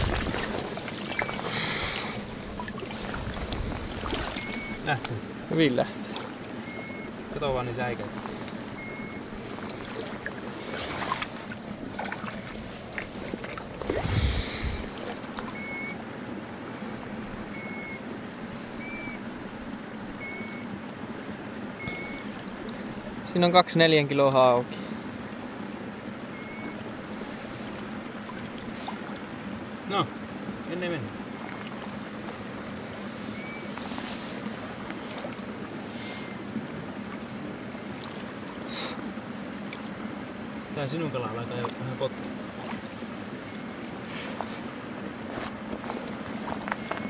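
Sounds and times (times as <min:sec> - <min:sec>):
wind noise on microphone: 0:00.0 - 0:00.7, 0:13.8 - 0:15.0
small splashes: 0:00.0 - 0:05.2, 0:05.9 - 0:06.6, 0:09.3 - 0:16.0, 0:27.2 - 0:29.4, 0:31.2 - 0:32.5, 0:37.0 - 0:40.1, 0:41.4 - 0:43.1
water washing on stony shore: 0:00.0 - 0:06.6
water lapping at shore: 0:00.0 - 0:23.6, 0:24.3 - 0:47.0.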